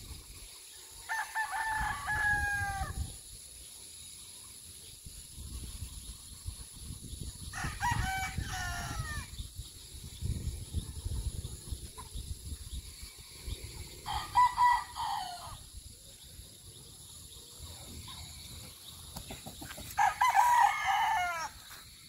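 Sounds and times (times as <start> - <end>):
roosters crowing: 1.0 - 3.2, 7.5 - 9.4, 14.0 - 15.8, 19.6 - 21.8.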